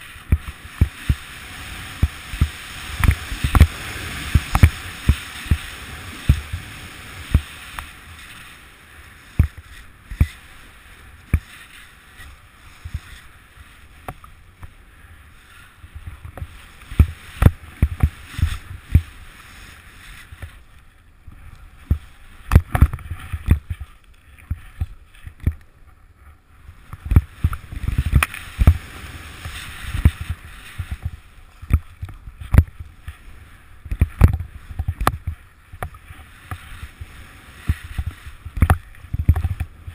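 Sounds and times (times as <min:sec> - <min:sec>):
snowboard sliding through snow: 0:00.0 - 0:25.2, 0:26.4 - 0:39.9
snowboard thumping over bumps: 0:00.2 - 0:07.8, 0:16.1 - 0:19.1.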